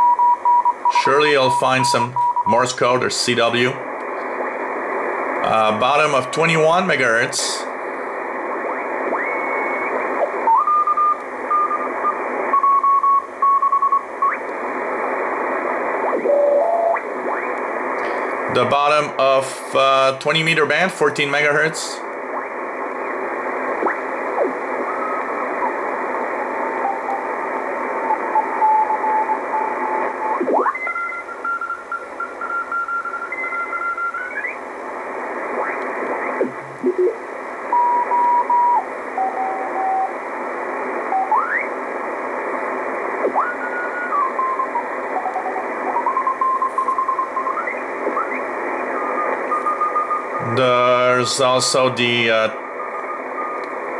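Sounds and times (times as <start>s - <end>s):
radio band hiss: 0.8s - 53.9s
morse code beeping tones: 28.6s - 34.4s, 43.5s - 50.6s.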